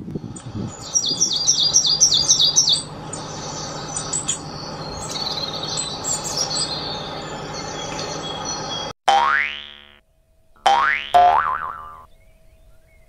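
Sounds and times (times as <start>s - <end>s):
songbird chirping and warbling: 0.2s - 8.9s, 11.8s - 13.0s.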